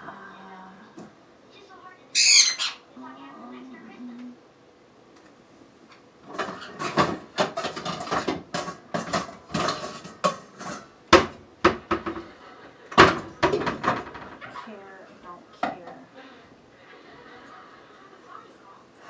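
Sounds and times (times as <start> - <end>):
pots and pans clattering: 6.2 - 14.8.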